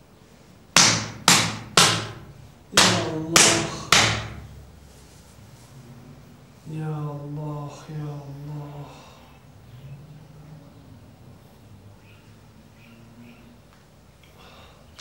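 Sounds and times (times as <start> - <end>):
sharp open-hand slaps: 0.8 - 4.5.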